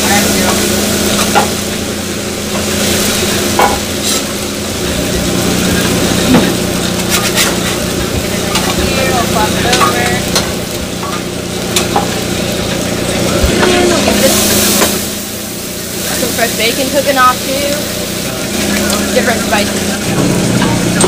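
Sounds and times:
meat sizzling on griddle: 0.0 - 21.0
metal spatula scraping griddle: 2.8 - 4.3, 6.3 - 7.9.

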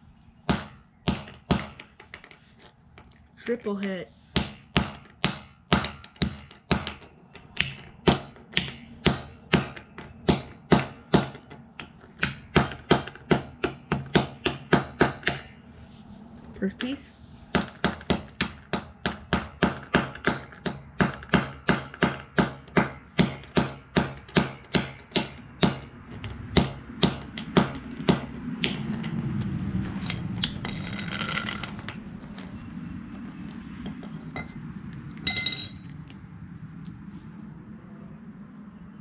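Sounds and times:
sharp ringing clink: 35.3 - 35.9.

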